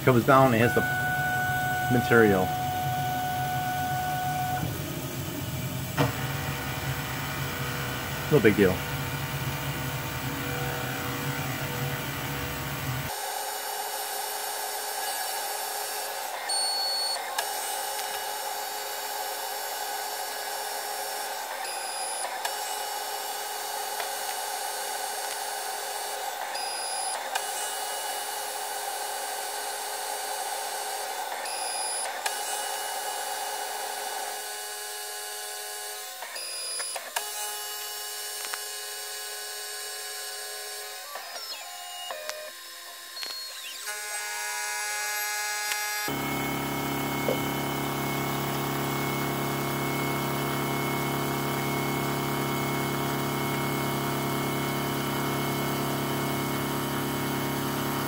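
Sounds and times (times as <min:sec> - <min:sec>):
steady motor tones: 0:00.0 - 0:15.4
milling machine cutting whine: 0:00.0 - 0:18.2, 0:34.2 - 0:58.0.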